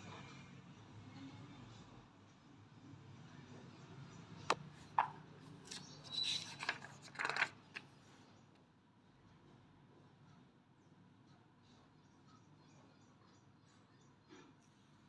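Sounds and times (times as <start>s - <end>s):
paper rustling and flapping: 5.6s - 7.9s.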